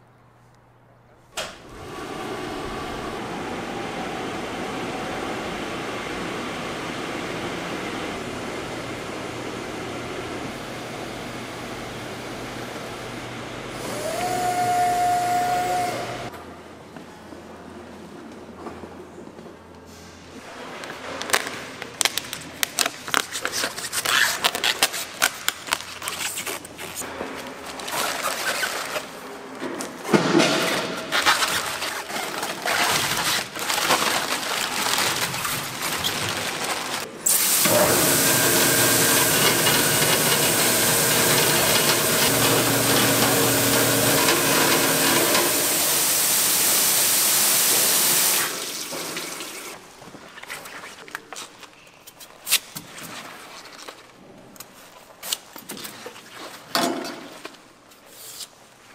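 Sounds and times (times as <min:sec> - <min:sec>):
machine hum: 0:01.6 - 0:16.4, 0:34.5 - 0:48.8
vegetables tumbling onto rollers: 0:29.6 - 0:37.2
plastic sack rustling: 0:31.0 - 0:37.2
spraying water: 0:37.2 - 0:49.8.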